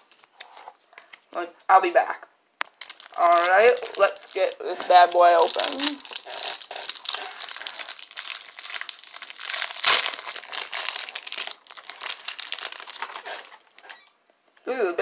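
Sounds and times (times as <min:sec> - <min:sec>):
plastic wrapping crinkling and tearing: 0:02.6 - 0:14.2.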